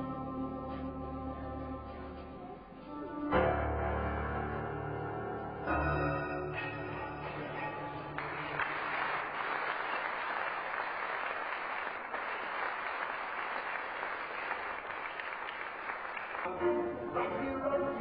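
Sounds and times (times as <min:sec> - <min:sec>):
audience applauding: 0:07.3 - 0:16.6.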